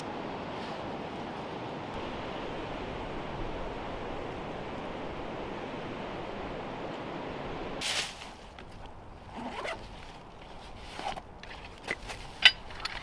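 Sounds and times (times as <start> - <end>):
strong wind through trees: 0.0 - 12.8
backpack zipper pulled open: 9.3 - 9.9
fabric rustling: 9.4 - 12.4.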